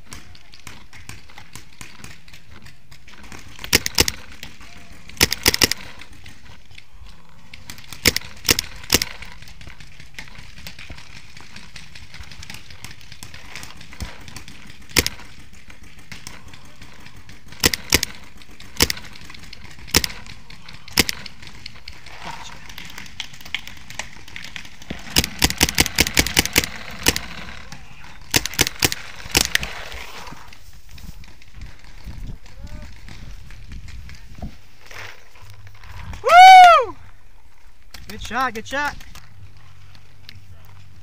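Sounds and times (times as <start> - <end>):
paintball marker shots: 0.0 - 6.5, 7.6 - 21.9, 22.7 - 30.0.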